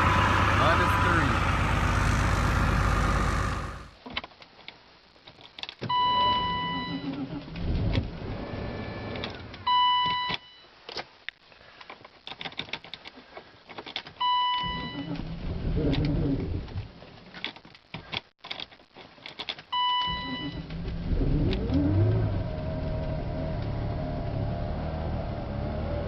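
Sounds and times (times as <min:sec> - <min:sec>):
low whirring: 0:00.0 - 0:04.0
vehicle engine running loudly: 0:00.0 - 0:04.0
electronic warning beep: 0:19.8 - 0:20.6.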